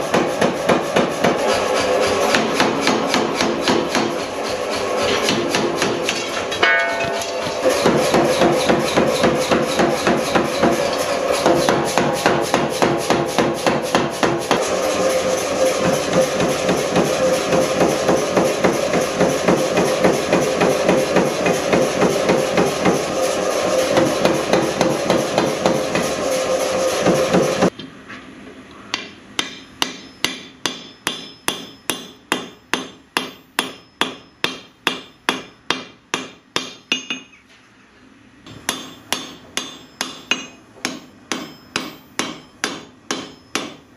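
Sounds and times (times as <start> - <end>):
power hammer pounding hot metal: 0.0 - 27.7, 29.4 - 37.3, 38.5 - 43.9
hand hammer ringing on anvil: 6.6 - 7.6, 29.4 - 35.9, 36.6 - 37.3, 38.7 - 43.8.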